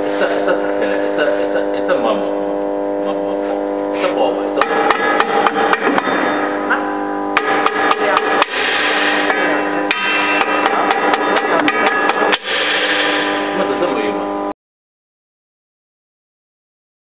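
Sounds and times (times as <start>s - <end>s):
mallet knocking on steel: 4.6s - 6.4s, 7.4s - 13.4s.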